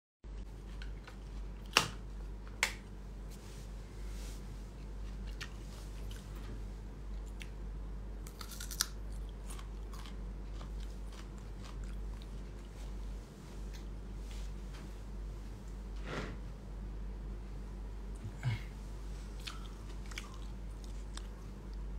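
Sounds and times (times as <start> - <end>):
person chewing crunchy food: 4.8 - 6.4, 8.2 - 13.2, 19.2 - 21.9.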